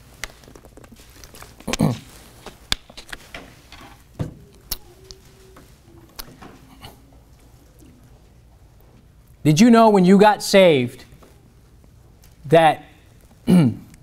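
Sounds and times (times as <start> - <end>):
book pages turning: 0.0 - 8.0.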